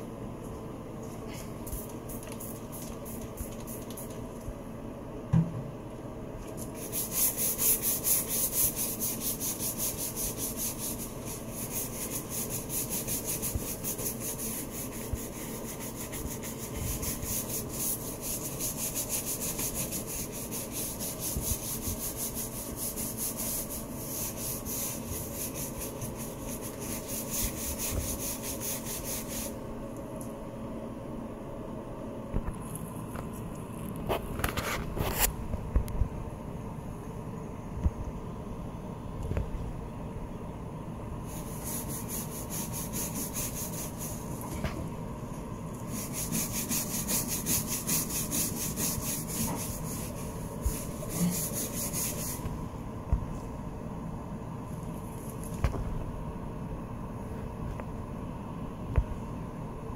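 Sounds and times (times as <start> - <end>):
brush scrubbing tile grout: 6.6 - 29.6, 41.3 - 44.4, 45.8 - 52.5.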